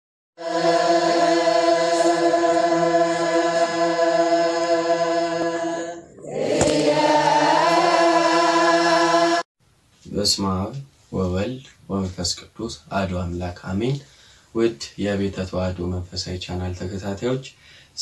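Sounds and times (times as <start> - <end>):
voices chanting in chorus: 0.4 - 9.5.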